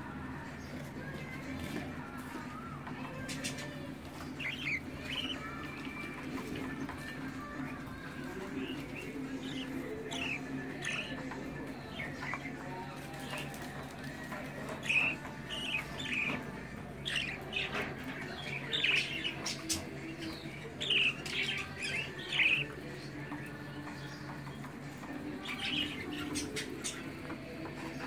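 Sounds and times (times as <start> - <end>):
budgerigar chicks chirping: 0.6 - 28.0.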